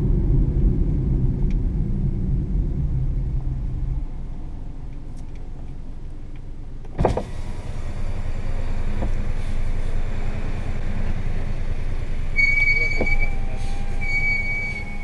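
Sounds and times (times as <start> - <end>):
car engine: 0.0 - 15.0
road noise: 0.0 - 15.0
sharp thump: 6.9 - 7.4.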